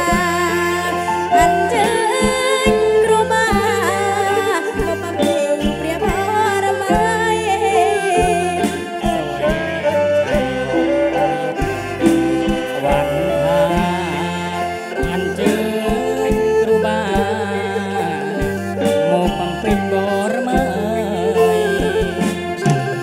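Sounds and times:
drums beat: 0.0 - 23.0
keyboards and guitars: 0.0 - 23.0
person singing: 0.0 - 23.0
brass section: 7.7 - 16.1.

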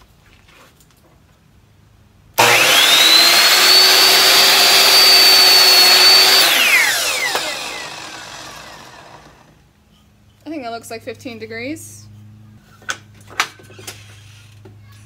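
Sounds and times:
saw blade cutting wood: 2.4 - 9.5
miter saw motor whine: 2.4 - 9.6.

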